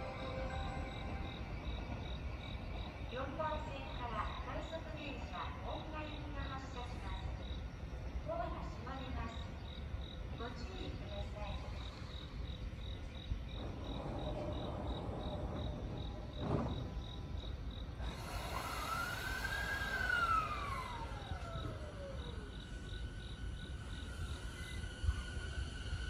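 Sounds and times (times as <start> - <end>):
gliding whine: 0.0 - 3.3, 18.0 - 26.0
insects chirping: 0.0 - 26.0.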